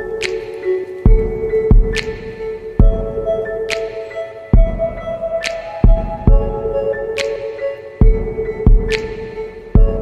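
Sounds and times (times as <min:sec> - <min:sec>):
ambient synth music: 0:00.0 - 0:10.0
deep low thumps: 0:02.8 - 0:03.2.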